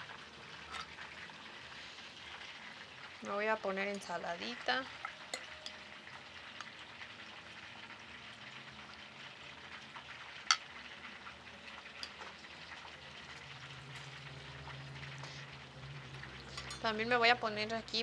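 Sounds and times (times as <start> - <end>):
oil sizzling in a frying pan: 0.0 - 18.0
metal spoon clinking on plate: 0.7 - 1.0, 5.0 - 5.8, 12.0 - 12.2, 16.5 - 16.9.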